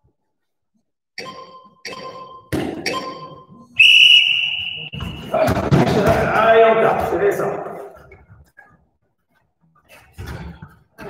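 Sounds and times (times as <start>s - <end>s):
timer short beeps: 1.2s - 5.0s.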